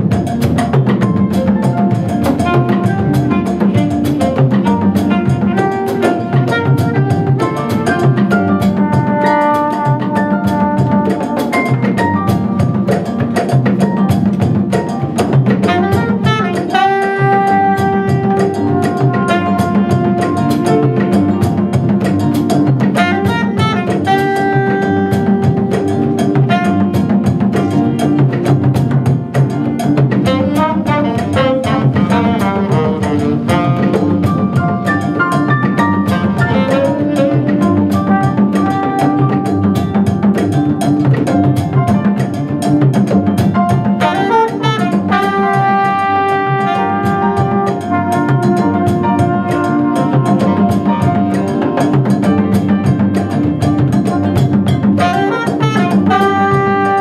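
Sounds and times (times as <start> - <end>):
congas: 0.0 - 57.0
double bass: 0.0 - 57.0
drum kit: 0.0 - 57.0
trombone: 0.0 - 57.0
saxophone: 2.2 - 11.9, 15.6 - 21.9, 23.0 - 27.7, 30.2 - 40.8, 43.8 - 52.2, 54.3 - 57.0.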